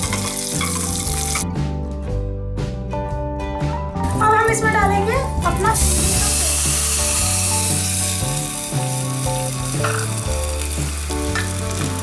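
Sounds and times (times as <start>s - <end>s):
liquid sizzling in hot oil: 0.0s - 1.4s, 5.7s - 12.0s.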